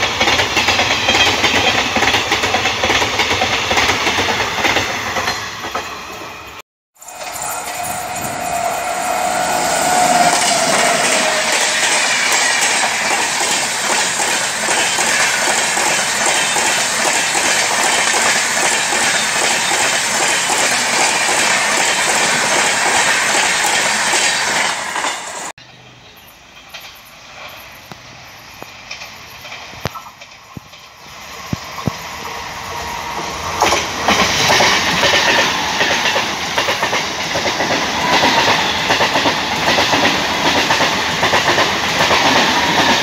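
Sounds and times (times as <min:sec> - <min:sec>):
steady tone: 0:07.0 - 0:13.7
train wheels clattering over rail joints: 0:09.8 - 0:25.3, 0:33.5 - 0:43.0.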